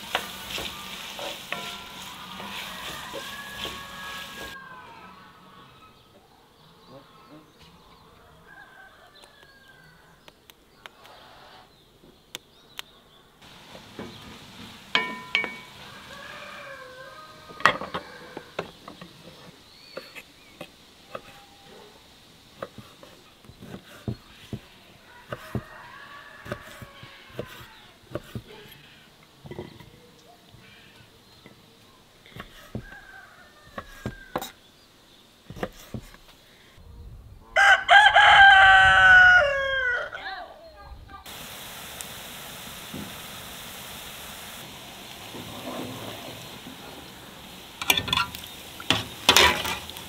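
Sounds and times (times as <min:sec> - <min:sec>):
birds chirping: 0:00.0 - 0:36.8, 0:44.3 - 0:50.0
ceramic bowls clinking on table: 0:14.9 - 0:15.8.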